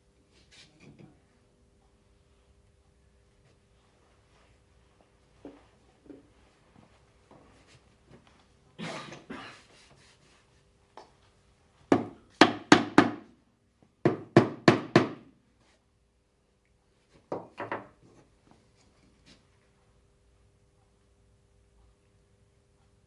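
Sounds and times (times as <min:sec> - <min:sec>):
hammer knocking on wood: 0:11.9 - 0:13.3, 0:14.0 - 0:15.3.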